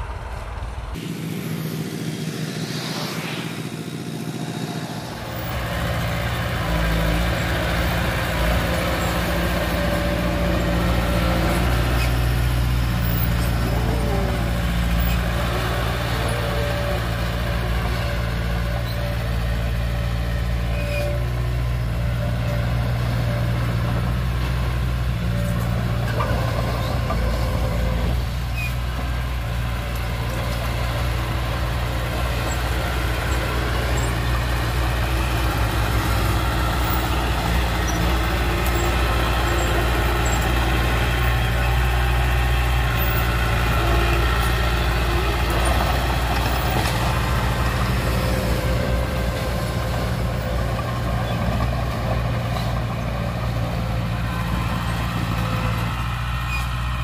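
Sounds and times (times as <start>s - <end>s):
bulldozer diesel engine running: 0.0s - 57.0s
faint squeals: 4.4s - 23.8s.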